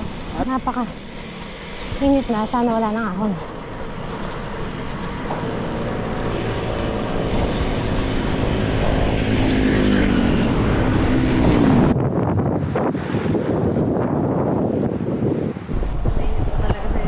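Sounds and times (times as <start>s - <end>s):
wind on microphone: 0.0s - 17.0s
vehicle engine passing by: 4.2s - 12.0s.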